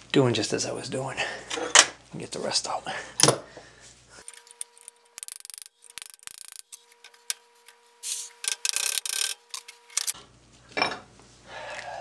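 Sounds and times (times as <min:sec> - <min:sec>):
metal gears ticking: 0:05.2 - 0:06.7.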